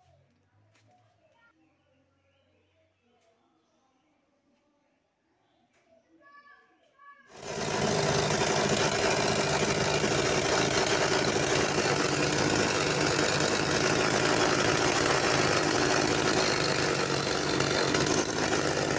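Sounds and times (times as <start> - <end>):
small two-stroke engine running: 7.4 - 18.9.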